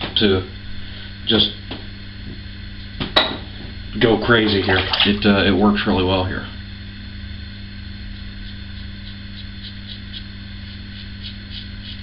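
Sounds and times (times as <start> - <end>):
steady low hum: 0.0 - 12.0
razor scraping stubble: 8.0 - 12.0.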